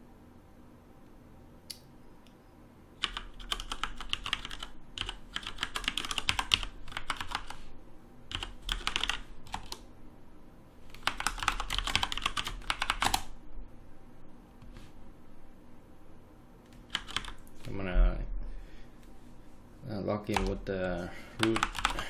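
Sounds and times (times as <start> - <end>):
fast typing on keyboard: 3.0 - 7.6, 8.3 - 9.8, 10.9 - 13.3, 16.7 - 17.5, 20.3 - 20.6, 21.4 - 22.0.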